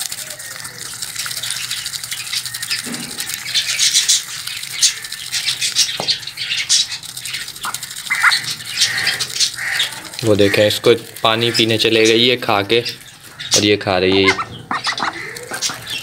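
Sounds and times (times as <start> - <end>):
duck bills clicking and rattling: 0.0 - 16.0
high duck calls: 7.6 - 11.7, 13.3 - 16.0.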